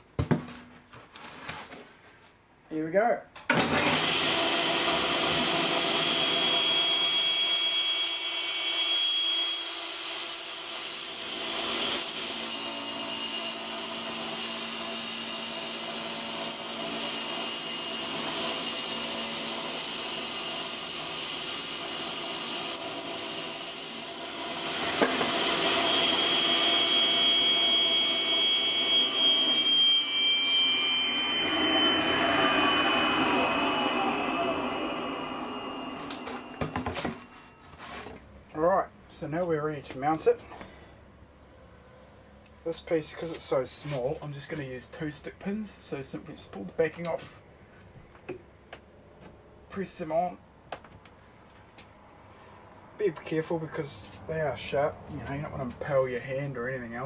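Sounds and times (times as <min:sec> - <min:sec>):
table saw motor hum: 0:03.7 - 0:09.1, 0:11.2 - 0:37.5
saw blade cutting insulation board: 0:03.7 - 0:38.2.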